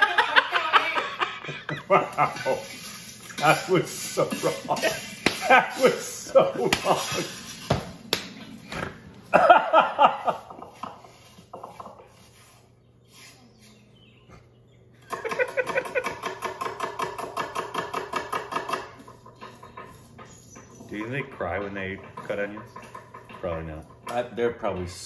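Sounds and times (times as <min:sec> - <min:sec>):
men laughing: 0:00.0 - 0:07.7, 0:09.2 - 0:12.2, 0:15.0 - 0:16.4
stone grinder scraping: 0:02.0 - 0:07.7, 0:16.0 - 0:24.8.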